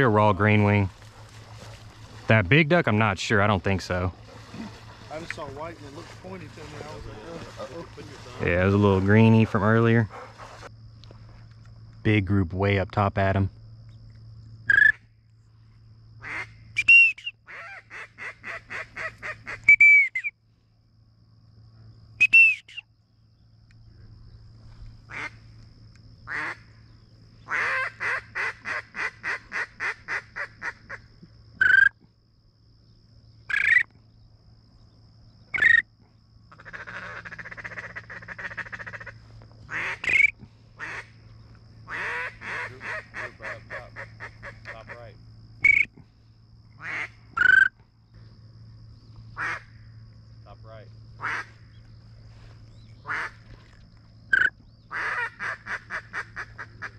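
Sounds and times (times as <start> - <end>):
duck call quacks: 16.2 - 20.3, 25.1 - 25.4, 26.3 - 26.6, 27.5 - 31.0, 36.6 - 41.1, 41.9 - 45.0, 46.8 - 47.7, 49.4 - 49.7, 51.2 - 51.5, 53.1 - 53.4, 54.4 - 56.9
duck call chattering: 22.2 - 22.8, 27.5 - 31.0, 36.6 - 41.1, 41.9 - 45.0, 54.4 - 56.9.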